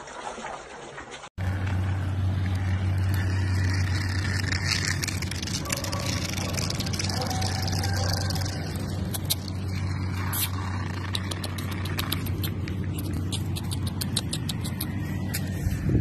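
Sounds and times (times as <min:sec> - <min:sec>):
mop handle dragging over asphalt: 0:01.1 - 0:13.3.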